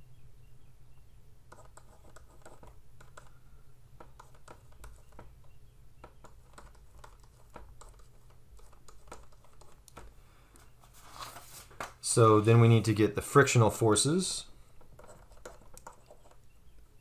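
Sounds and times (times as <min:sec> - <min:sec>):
low steady hum: 0:00.0 - 0:17.0
stylus tapping on tablet: 0:01.5 - 0:03.4, 0:04.0 - 0:10.1, 0:14.8 - 0:16.5.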